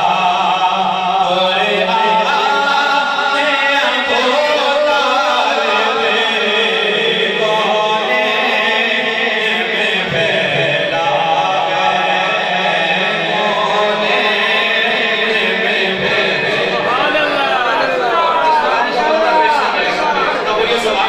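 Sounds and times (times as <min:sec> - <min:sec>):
male voices chanting: 0:00.0 - 0:21.0.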